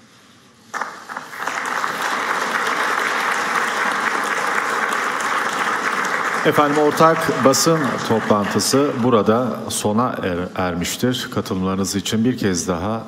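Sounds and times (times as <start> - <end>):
audience applauding: 0.7 - 9.8.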